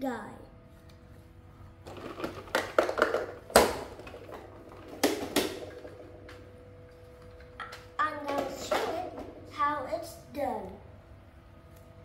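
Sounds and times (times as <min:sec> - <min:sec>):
plastic toy parts knocking: 0:01.9 - 0:06.1.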